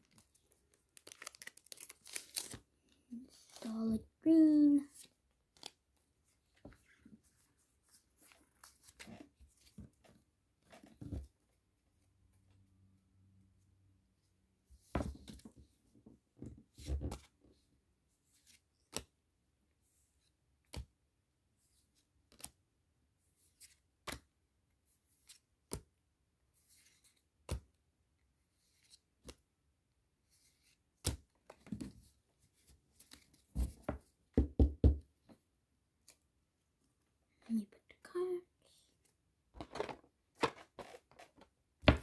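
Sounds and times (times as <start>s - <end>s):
foil pack crinkling: 1.0s - 2.6s.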